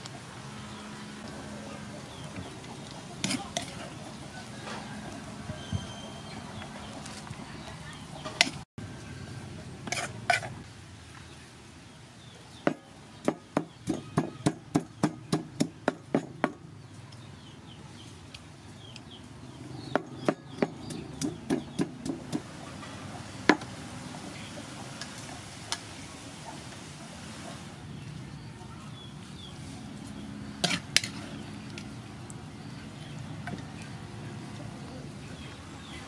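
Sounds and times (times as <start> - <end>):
rhythmic knocking of food preparation: 12.6 - 16.7, 19.9 - 22.5.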